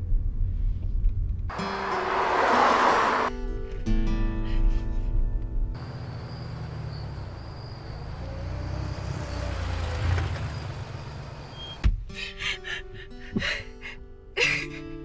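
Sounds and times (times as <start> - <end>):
car engine running: 5.8 - 11.8.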